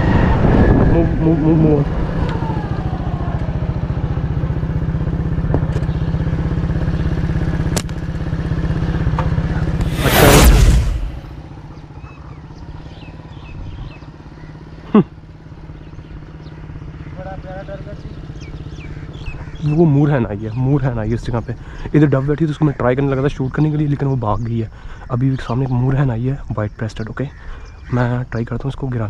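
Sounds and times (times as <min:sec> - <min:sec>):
vehicle engine running: 0:01.6 - 0:22.0
loud rush of noise: 0:09.8 - 0:11.6
short sharp sound: 0:09.8 - 0:11.6.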